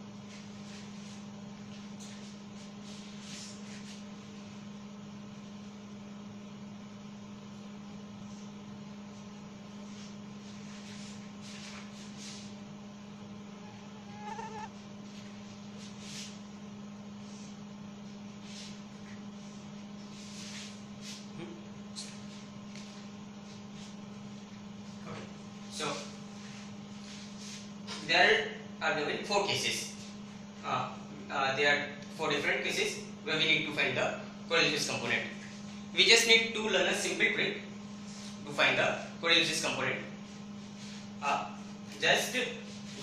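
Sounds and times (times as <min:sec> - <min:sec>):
steady low hum: 0:00.0 - 0:43.0
marker squeaking on whiteboard: 0:13.6 - 0:14.7.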